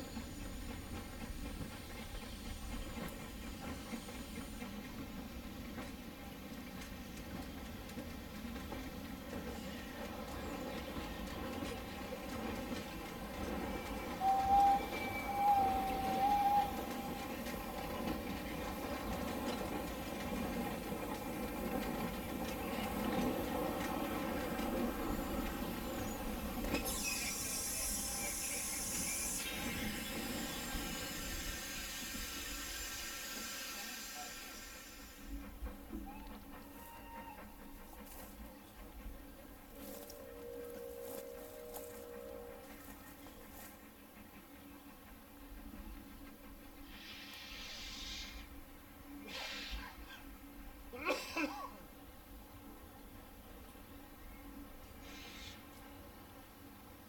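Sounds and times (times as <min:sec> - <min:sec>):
wheels clicking on track: 0:00.0 - 0:48.5
steam hiss: 0:00.0 - 0:51.6, 0:54.8 - 0:56.7
steam locomotive rumble: 0:00.0 - 0:57.0
loud steam hiss: 0:13.7 - 0:36.1, 0:46.7 - 0:50.2, 0:54.9 - 0:55.7.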